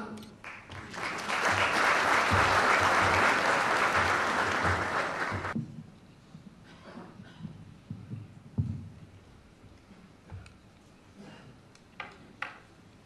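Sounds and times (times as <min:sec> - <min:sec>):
audience applauding: 0:00.4 - 0:05.6.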